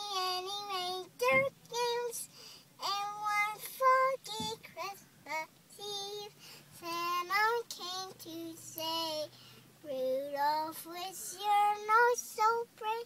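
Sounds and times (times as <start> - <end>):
girl singing: 0.0 - 13.0.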